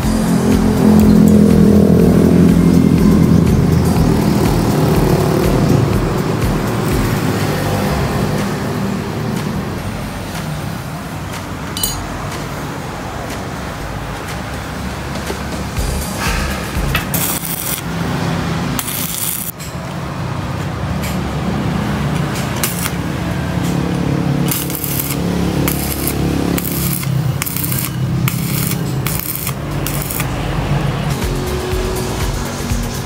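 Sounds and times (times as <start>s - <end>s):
welding arc crackling: 15.6s - 19.6s, 21.9s - 31.4s.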